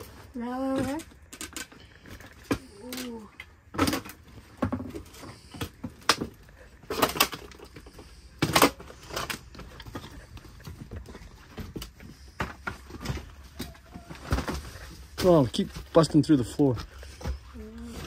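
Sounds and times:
footsteps crunching through debris: 8.8 - 18.0.

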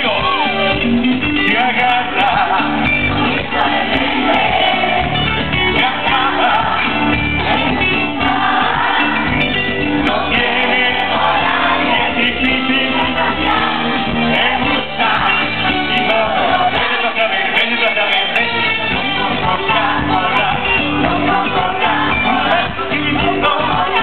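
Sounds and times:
amplified band playing: 0.0 - 24.0
crowd voices: 0.0 - 24.0
man singing: 1.4 - 2.9, 12.0 - 13.2, 14.6 - 24.0.

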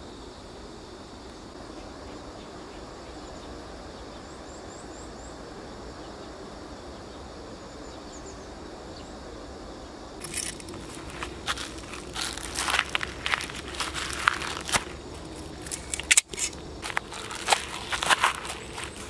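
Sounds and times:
footsteps crunching on gravel: 10.2 - 19.0.

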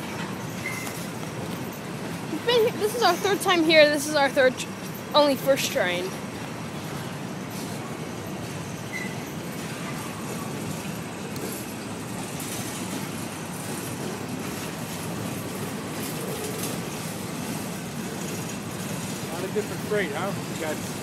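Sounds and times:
train wheels rolling on rails: 0.0 - 21.0
faint wheel squeal: 0.3 - 1.8, 7.5 - 10.7.

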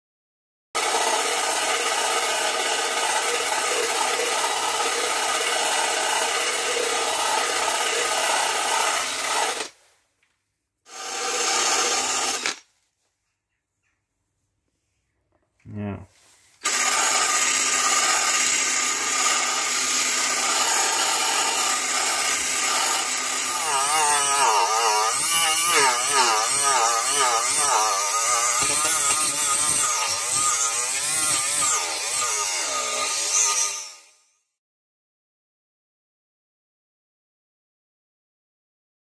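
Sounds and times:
rotary wire brush scrubbing metal: 20.4 - 33.4.

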